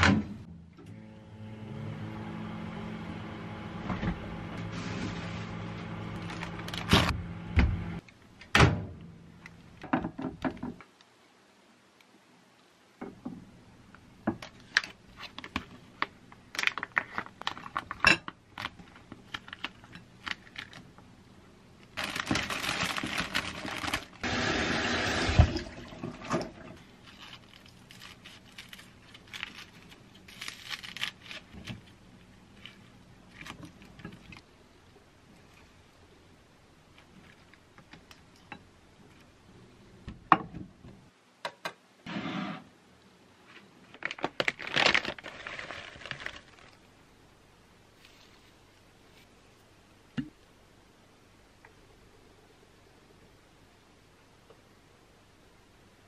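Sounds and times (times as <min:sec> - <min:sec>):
microwave oven humming: 0:00.0 - 0:08.0
plastic packaging crinkling: 0:06.1 - 0:07.1, 0:14.6 - 0:20.9, 0:21.9 - 0:24.2, 0:26.8 - 0:34.4, 0:43.8 - 0:46.9.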